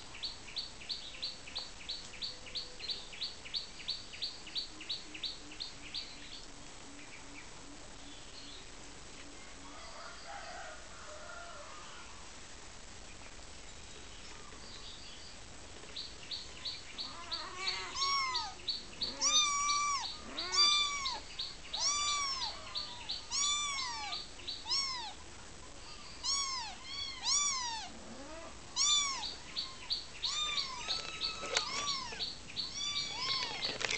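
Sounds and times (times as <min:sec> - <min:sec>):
kitten meowing: 0:17.0 - 0:21.2, 0:21.8 - 0:25.2, 0:26.2 - 0:33.8.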